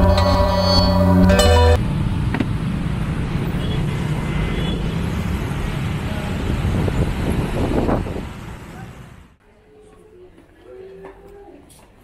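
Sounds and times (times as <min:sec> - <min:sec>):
road traffic rumble: 0:00.0 - 0:09.4.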